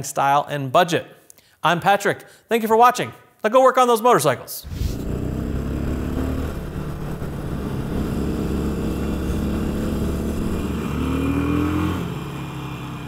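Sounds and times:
motorcycle engine running: 4.7s - 13.0s.

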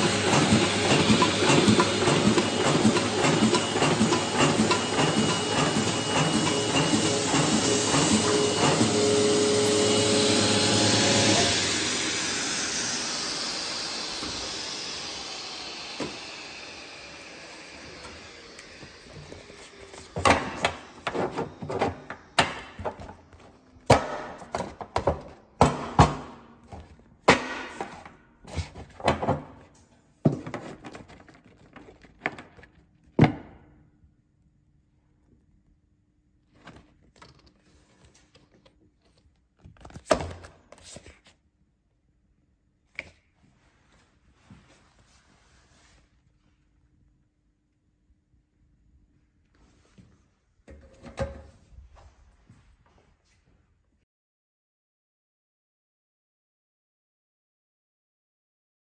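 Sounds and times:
blower hissing with falling whine: 6.0s - 22.2s.

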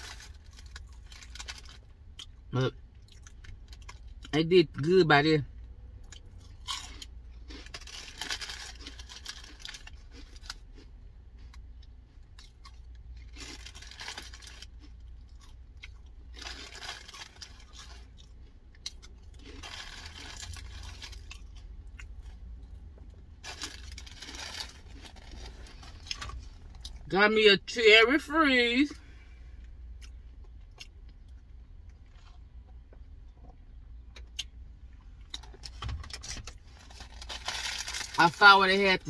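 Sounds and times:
low steady hum: 0.0s - 39.0s
crunchy chewing: 6.0s - 22.8s
paper wrappers rustling: 23.4s - 26.4s, 36.7s - 38.4s.

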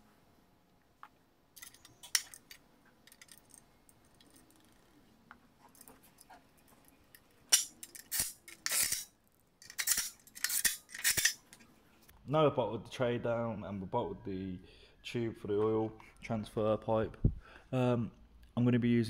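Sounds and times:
metal bolts clinking and clattering: 1.6s - 4.8s, 6.8s - 11.5s.

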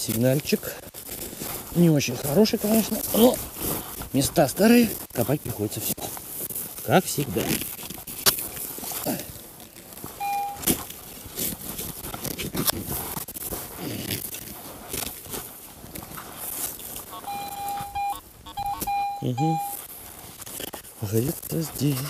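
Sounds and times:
footsteps crunching in dry grass: 0.0s - 22.0s
metal detector beep tone: 10.2s - 10.8s, 17.1s - 19.8s.

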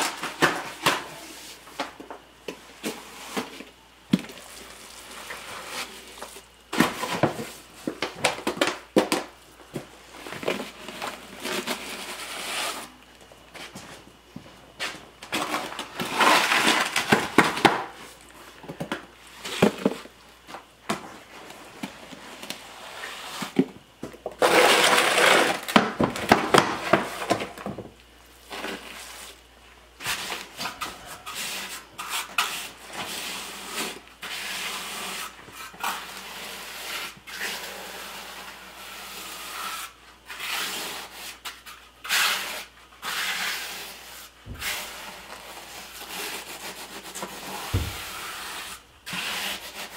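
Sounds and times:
steel trowel scraping concrete: 24.4s - 25.6s, 30.2s - 49.9s
concrete scraped in plastic trough: 24.4s - 25.7s.

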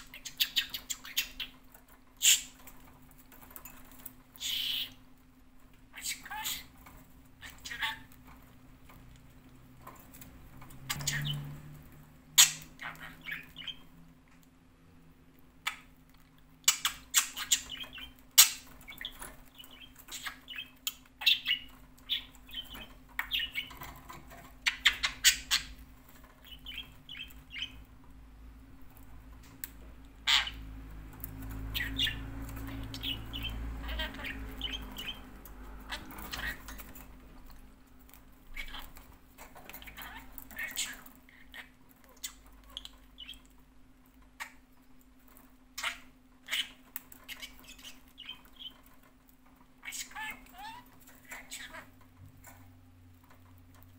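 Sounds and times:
budgerigar chirping and squawking: 0.0s - 2.9s, 4.4s - 5.0s, 5.9s - 8.4s, 10.8s - 11.6s, 12.3s - 13.9s, 16.6s - 27.8s, 30.2s - 30.7s, 31.5s - 37.1s, 38.4s - 43.5s, 45.7s - 48.8s, 49.8s - 52.0s.

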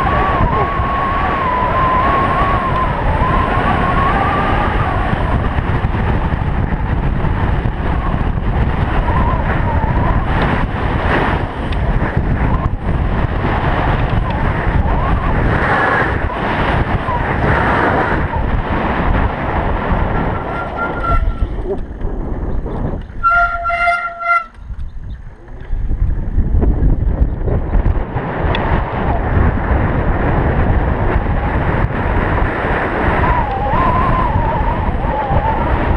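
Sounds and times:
tyre and road noise: 0.0s - 35.9s
wind buffeting microphone: 0.0s - 35.9s
horn toot: 20.4s - 21.6s, 23.2s - 24.6s.

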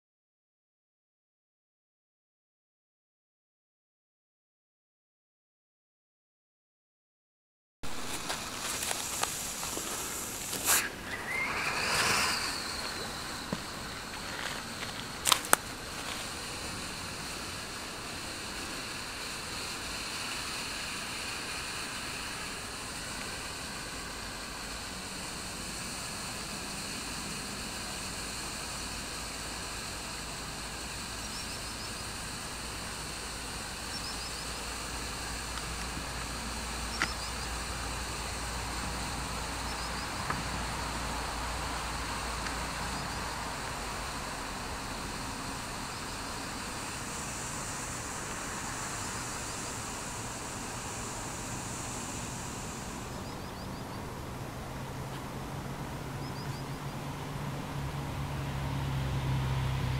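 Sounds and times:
smoke grenade hissing: 7.9s - 31.2s
smoke grenade whooshing: 8.5s - 14.2s.

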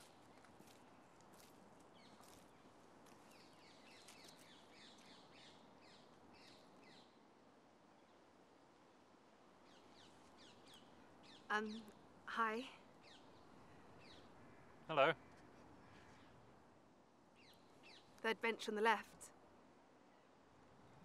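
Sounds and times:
woman speaking: 11.5s - 12.8s, 18.3s - 19.3s.

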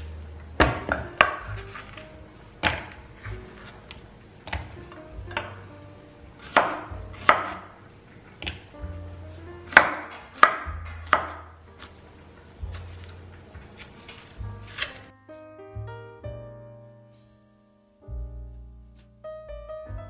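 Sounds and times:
knife striking cutting board: 6.4s - 7.8s, 9.7s - 11.9s.

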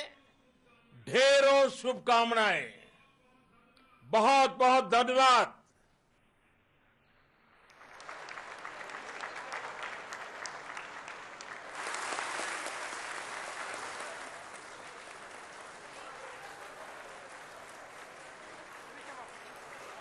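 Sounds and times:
large crowd applauding: 7.7s - 20.0s.

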